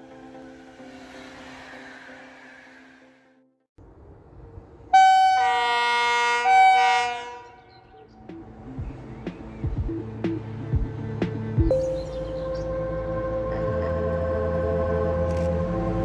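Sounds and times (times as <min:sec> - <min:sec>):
electric locomotive horn blasts: 0:04.9 - 0:07.7.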